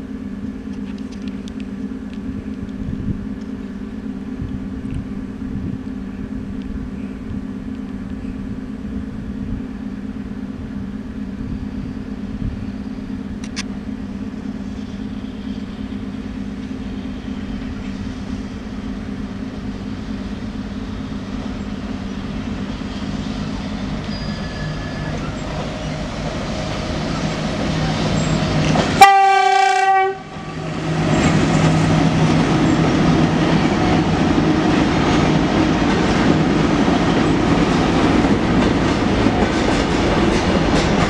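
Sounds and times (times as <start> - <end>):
electric locomotive hum: 0.0 - 41.0
train wheels on rails: 0.0 - 41.0
sharp click: 13.4 - 13.7.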